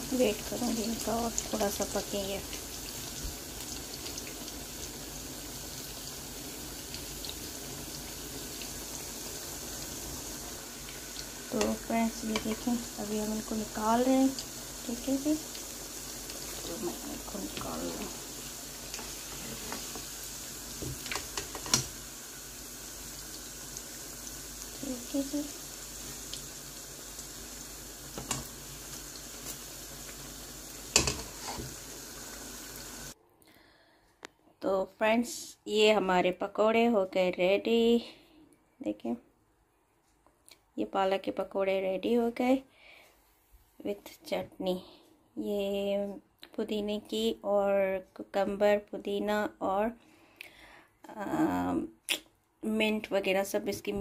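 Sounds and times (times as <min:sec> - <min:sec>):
food sizzling in hot oil: 0:00.0 - 0:33.2.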